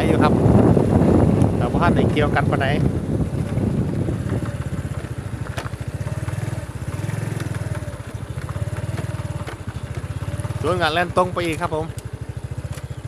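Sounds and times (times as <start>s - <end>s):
small motorcycle engine running: 0.0s - 13.0s.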